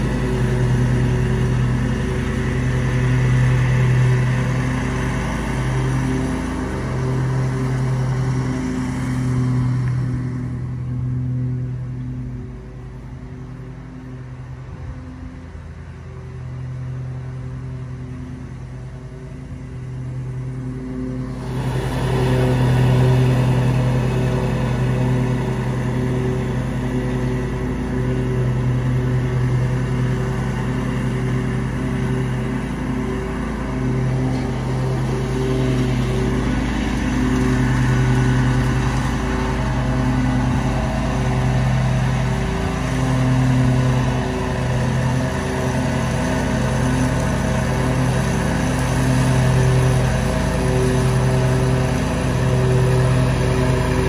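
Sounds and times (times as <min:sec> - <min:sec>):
lawn mower engine running: 0:00.0 - 0:54.0.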